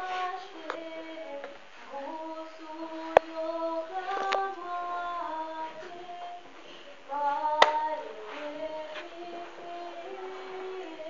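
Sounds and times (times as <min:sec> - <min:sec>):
woman singing slow melody: 0:00.0 - 0:11.0
faint clicks: 0:03.0 - 0:04.8.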